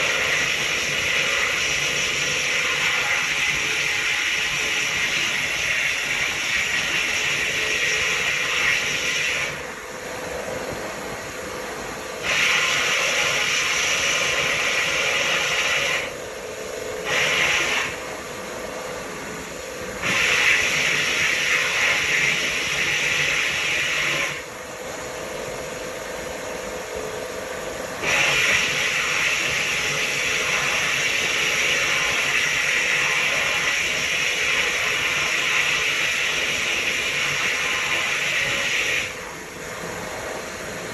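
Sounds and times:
blast nozzle hissing: 12.2s - 16.2s, 17.0s - 18.1s, 20.0s - 24.5s, 28.0s - 39.2s.

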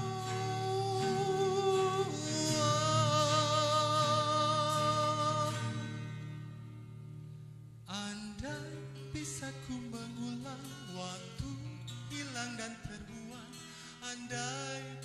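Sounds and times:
man singing long notes: 0.0s - 5.8s
acoustic backing music: 0.0s - 15.0s.

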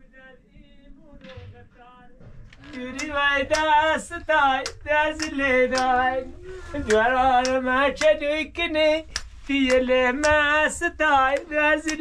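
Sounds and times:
regular beat: 1.2s - 8.3s.

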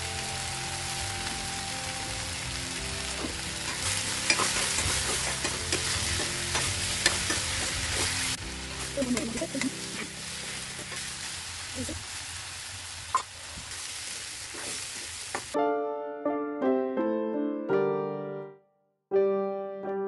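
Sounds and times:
vegetables sizzling in a pan: 0.0s - 15.6s
metal spatula scraping a pan: 3.7s - 8.4s, 14.5s - 15.1s.

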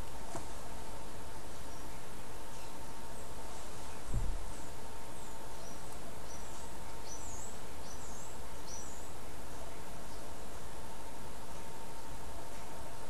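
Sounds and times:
background hiss: 0.0s - 13.0s
faint hum: 0.0s - 13.0s
soft low bump: 4.0s - 4.6s.

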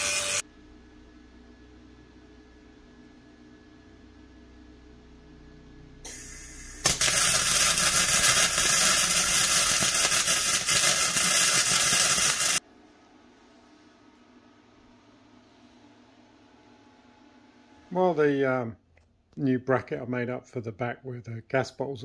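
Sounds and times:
welding arc crackling: 0.0s - 0.4s, 6.1s - 12.6s
welding arc hiss: 0.0s - 0.4s, 6.0s - 12.6s.

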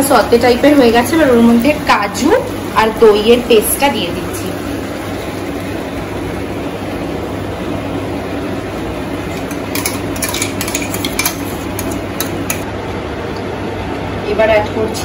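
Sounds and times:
steady low hum: 0.0s - 15.0s
metal spoon scraping a pan: 9.3s - 12.6s
spoon clinking on pan: 9.4s - 12.6s.

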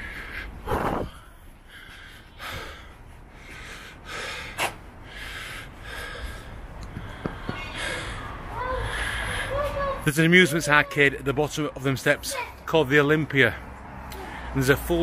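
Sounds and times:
man gasping for breath: 0.0s - 9.6s.

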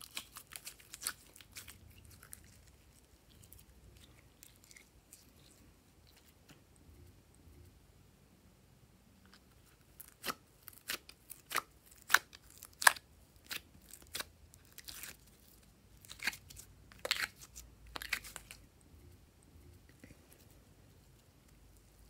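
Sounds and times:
soft slime crackle: 0.0s - 6.6s.

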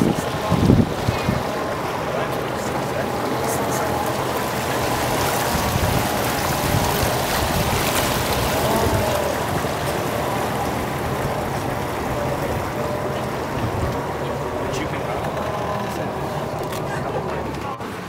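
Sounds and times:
wind on microphone: 0.0s - 17.2s
boat engine rumble: 0.0s - 18.0s
water rushing along hull: 0.0s - 18.0s.

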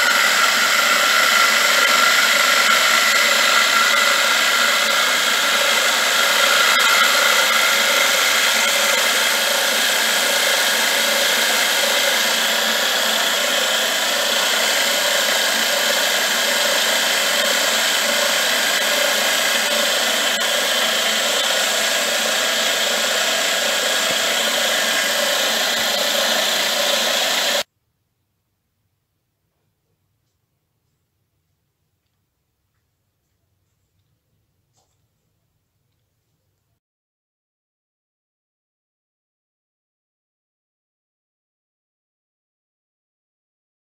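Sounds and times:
milling machine cutting metal: 0.0s - 27.7s.

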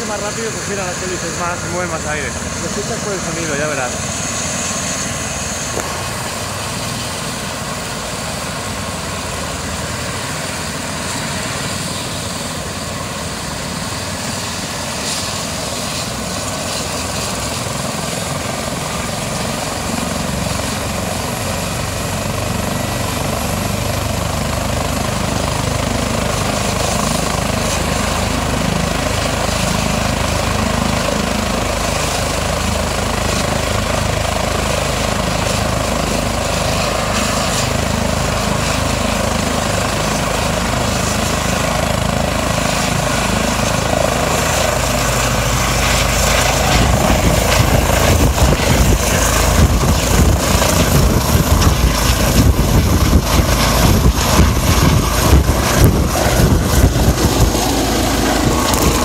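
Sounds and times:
helicopter rotor starting up: 0.0s - 59.0s.

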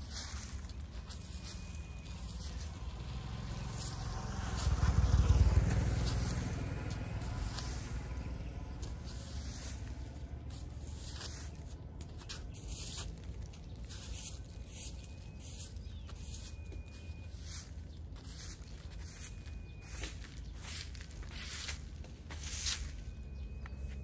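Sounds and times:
low rumble: 0.0s - 15.4s
broom sweeping dry leaves: 0.0s - 24.0s.

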